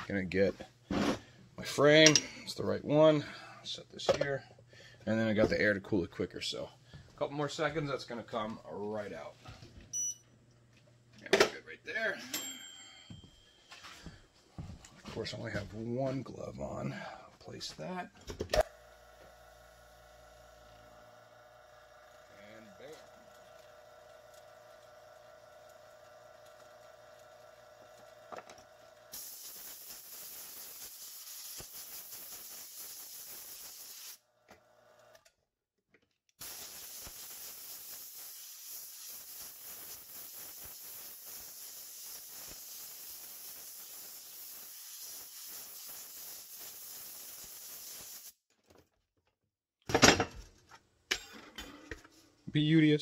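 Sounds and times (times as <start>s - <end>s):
compressed air blow gun hissing: 29.1s - 34.2s, 36.4s - 48.4s.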